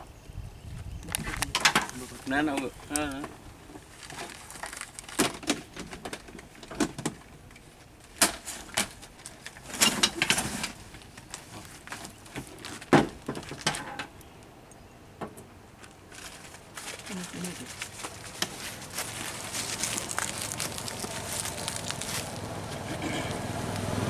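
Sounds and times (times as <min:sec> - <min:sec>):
gear and plastic containers rattling: 0:08.1 - 0:14.1, 0:16.1 - 0:23.4.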